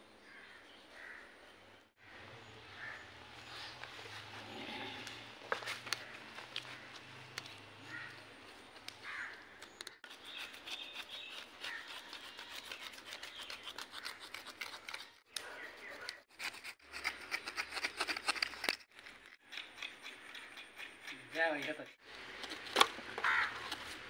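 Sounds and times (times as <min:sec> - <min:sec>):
knives scraping fish scales: 0:10.0 - 0:22.0.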